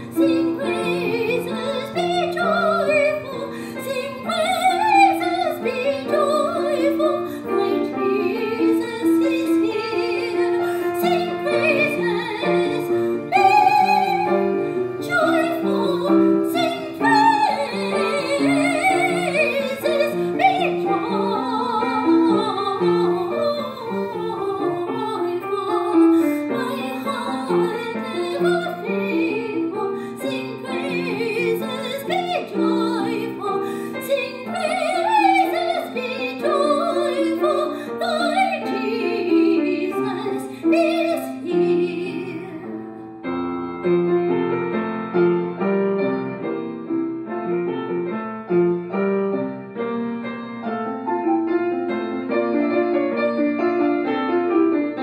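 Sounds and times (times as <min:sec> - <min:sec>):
operatic singing with vibrato: 0:00.0 - 0:42.7
piano accompaniment: 0:00.0 - 0:55.0.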